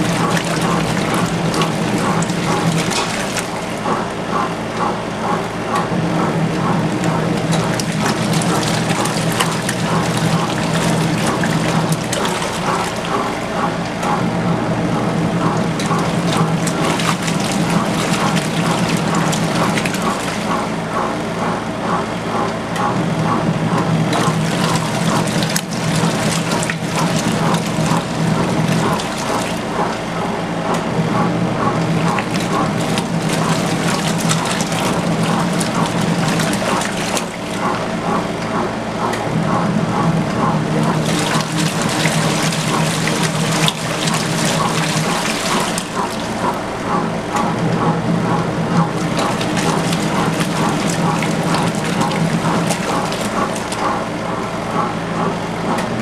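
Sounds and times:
washer motor humming: 0.0 - 56.0
water churning and sloshing: 0.0 - 56.0.

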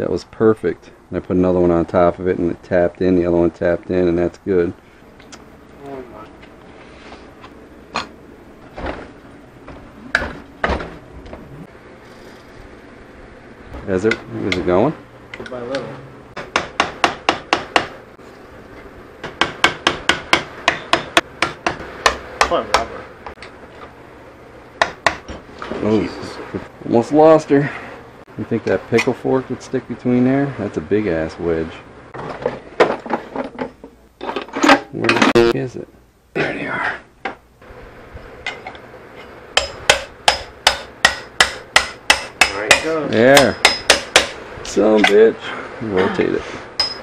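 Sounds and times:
hammer striking steel wedge: 16.4 - 17.9, 19.2 - 22.9, 39.6 - 44.4, 46.8 - 47.0
hammer blows on metal: 39.6 - 44.4.

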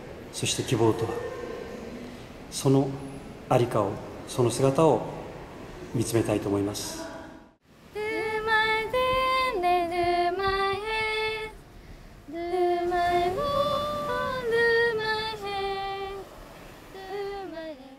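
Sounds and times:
woman singing slow melody: 7.9 - 11.6, 12.3 - 17.9.

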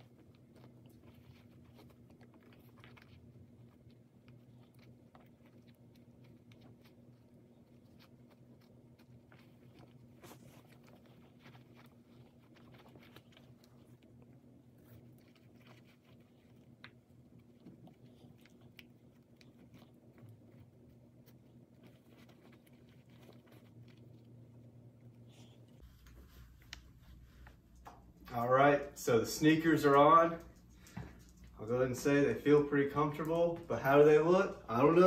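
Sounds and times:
low steady hum: 0.0 - 35.0.

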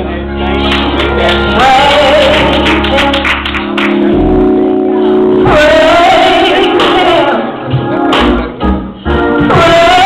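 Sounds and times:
low bass: 0.0 - 7.3
sustained accompaniment chords: 0.0 - 9.7
woman singing into a microphone: 1.6 - 3.2, 5.4 - 7.6, 9.4 - 10.0.

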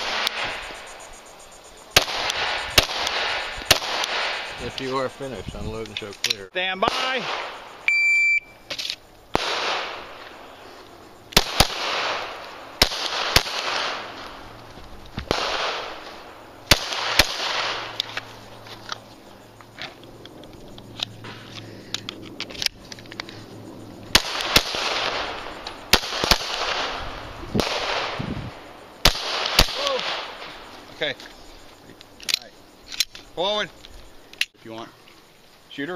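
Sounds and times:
pistol shots with echo: 2.0 - 4.5, 6.8 - 7.6, 9.3 - 10.2, 11.3 - 14.1, 15.3 - 16.0, 16.6 - 18.0, 24.1 - 28.2, 29.0 - 30.5.

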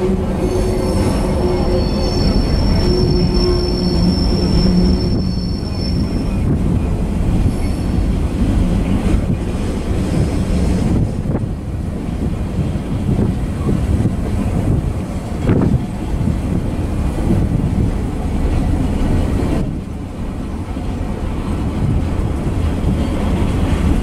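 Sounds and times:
train wheels rumbling on rails: 0.0 - 24.0
wheels squealing: 0.2 - 8.2.

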